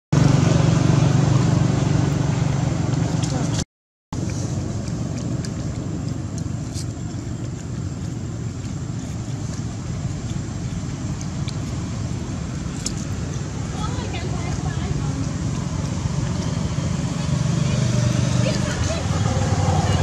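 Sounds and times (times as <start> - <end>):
low rumbling background noise: 4.2 - 20.0.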